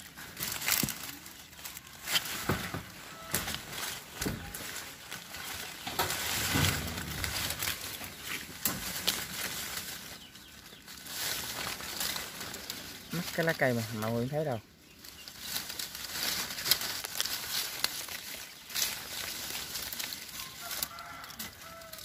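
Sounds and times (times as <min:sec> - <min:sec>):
leaves and twigs rustling and snapping: 0:00.0 - 0:22.0.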